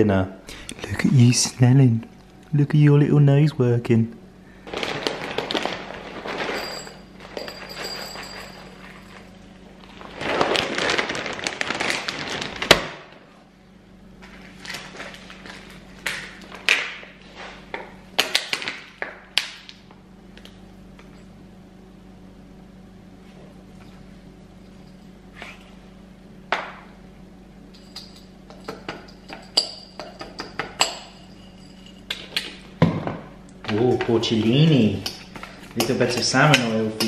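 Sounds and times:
rustling and scraping: 0:04.6 - 0:12.7, 0:25.3 - 0:25.8.

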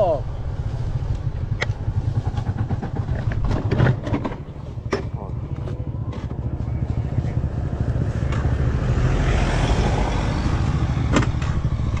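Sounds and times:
vehicle engine running: 0:00.0 - 0:12.0.

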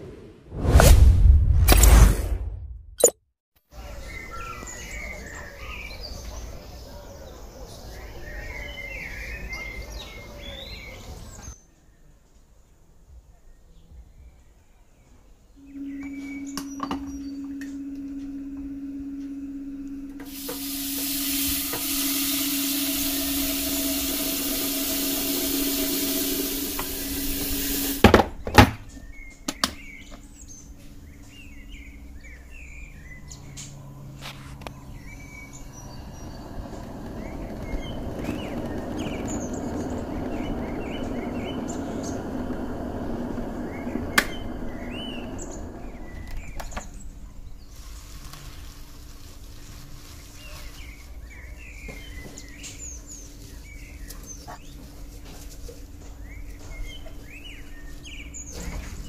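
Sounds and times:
birds chirping: 0:03.8 - 0:11.6, 0:15.6 - 0:47.7, 0:56.0 - 0:59.0
kettle heating rushing: 0:20.1 - 0:28.2, 0:35.8 - 0:46.7
tap water running into kettle: 0:20.2 - 0:28.1.

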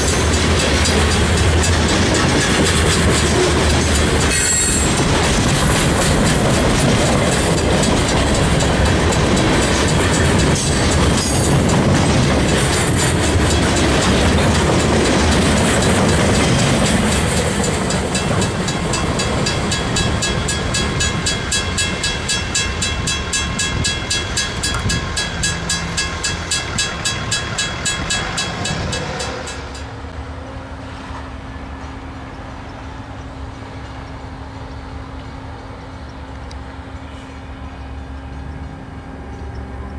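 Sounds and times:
wheels clicking over rail joints: 0:00.0 - 0:30.0
distant train low hum: 0:00.0 - 0:39.9
freight train rolling past: 0:00.0 - 0:39.9
crossing bell ringing: 0:07.4 - 0:30.0.

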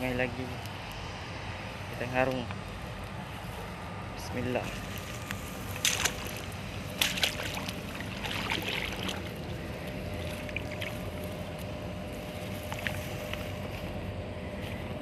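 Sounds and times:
water sloshing and splashing: 0:04.7 - 0:11.7, 0:12.4 - 0:13.4.

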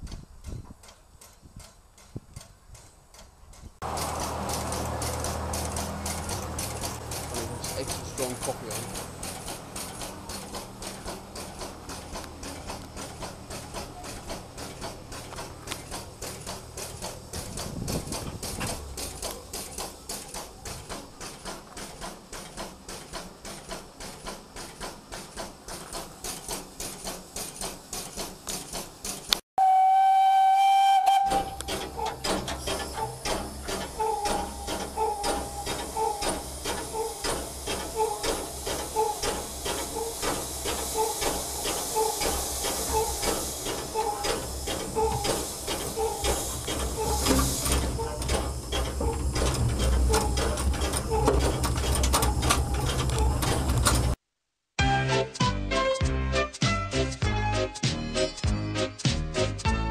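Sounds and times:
steam locomotive beats: 0:00.0 - 0:54.2
steam hissing: 0:03.8 - 0:29.4, 0:30.6 - 0:54.2
steam whistle blast: 0:29.6 - 0:31.7.

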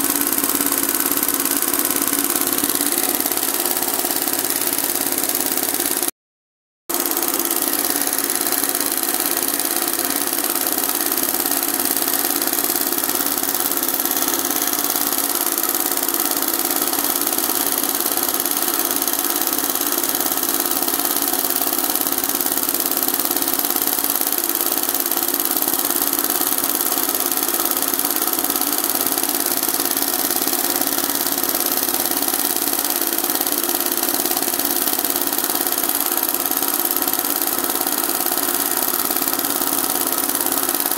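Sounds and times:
embroidery machine whirring: 0:00.0 - 0:06.1, 0:06.9 - 0:17.8.

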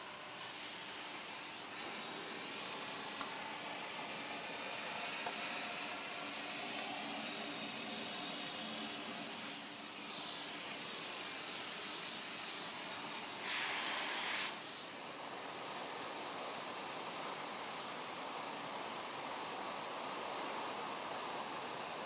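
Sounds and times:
vacuum cleaner suction hissing: 0:00.0 - 0:15.2.

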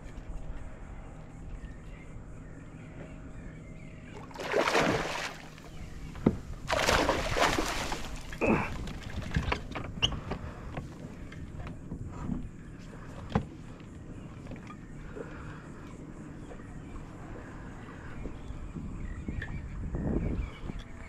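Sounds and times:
fish splashing at water surface: 0:04.3 - 0:05.6, 0:06.6 - 0:09.2.

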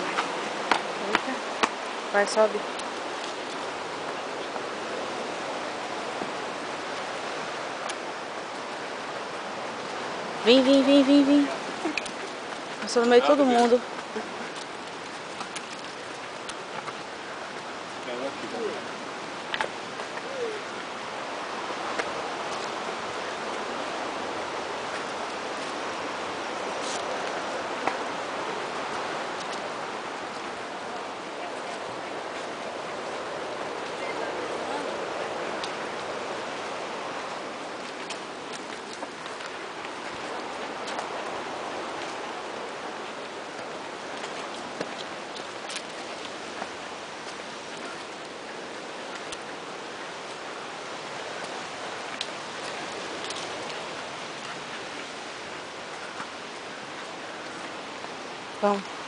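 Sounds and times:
footsteps on dirt trail: 0:00.0 - 0:04.8
steady rushing outdoor noise: 0:00.0 - 0:59.0.

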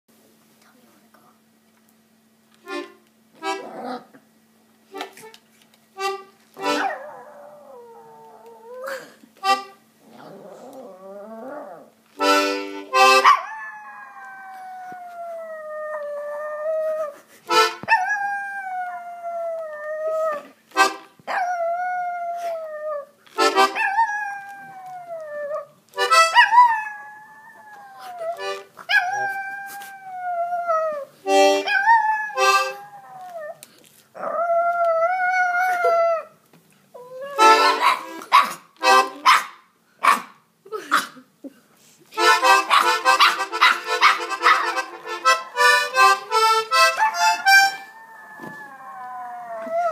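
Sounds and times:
dog howling: 0:06.8 - 0:08.8, 0:10.3 - 0:11.9, 0:13.2 - 0:17.1, 0:17.9 - 0:20.5, 0:21.3 - 0:25.7, 0:26.3 - 0:33.6, 0:46.8 - 0:49.9.

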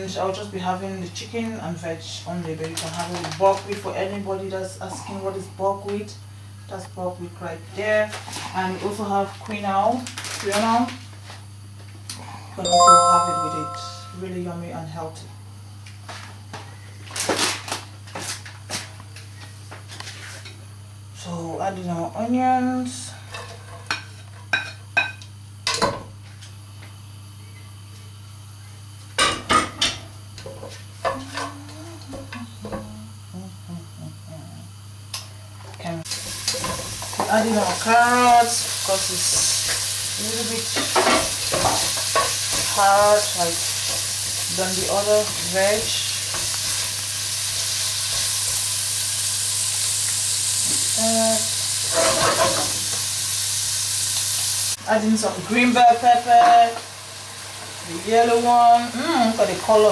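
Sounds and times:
vegetables sizzling in oil: 0:36.0 - 0:59.9.

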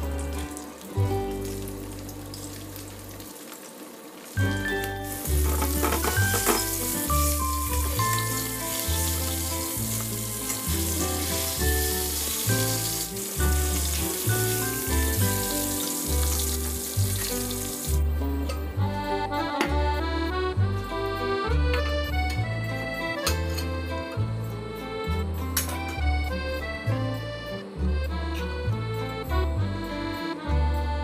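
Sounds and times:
fish frying in hot oil: 0:00.1 - 0:18.0
background music with bass line: 0:04.4 - 0:31.0.

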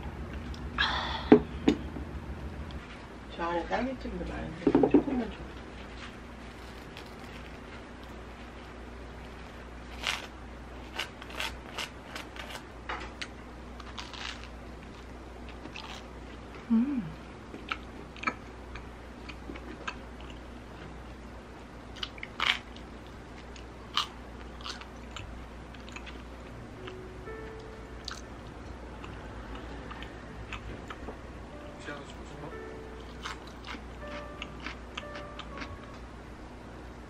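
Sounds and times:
toast crunching and chewing: 0:06.4 - 0:08.2, 0:09.3 - 0:16.1, 0:21.9 - 0:26.3, 0:33.0 - 0:35.7.

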